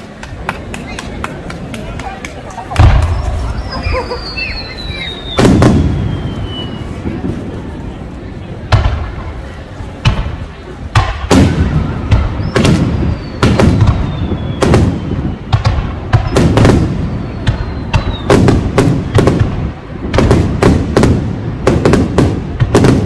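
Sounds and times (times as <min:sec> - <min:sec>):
fireworks bursting bangs: 0:01.4 - 0:23.0
faint descending whistles: 0:03.1 - 0:07.0, 0:12.4 - 0:15.5, 0:17.0 - 0:18.3.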